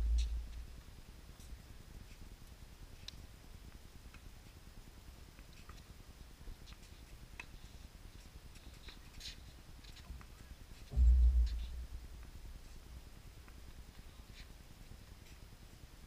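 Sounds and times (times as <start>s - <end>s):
low steady rumble: 0.0s - 1.0s, 10.9s - 13.8s
faint ticks and clicks: 0.0s - 16.0s.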